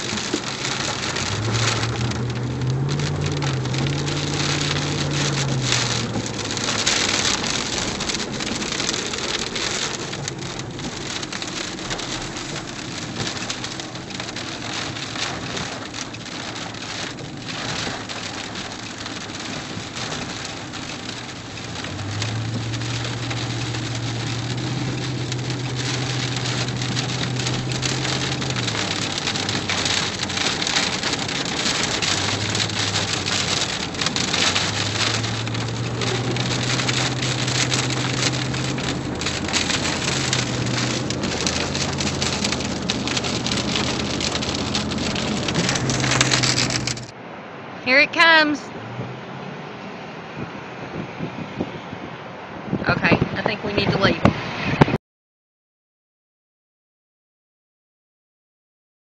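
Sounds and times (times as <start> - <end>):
rain on vehicle windows: 0.0 - 54.9.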